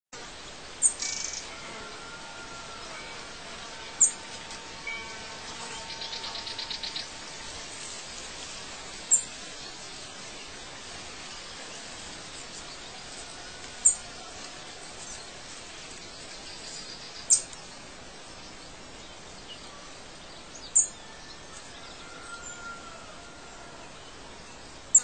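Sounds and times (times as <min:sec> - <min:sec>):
steady hiss: 0:00.2 - 0:25.0
birds chirping: 0:00.3 - 0:25.0.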